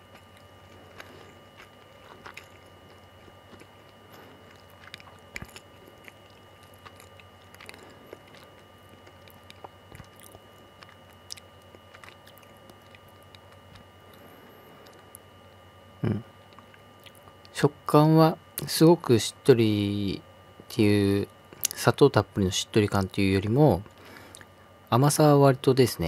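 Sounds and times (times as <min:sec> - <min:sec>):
person chewing: 0:00.0 - 0:15.3, 0:16.0 - 0:17.5
faint steady hum: 0:00.0 - 0:26.0.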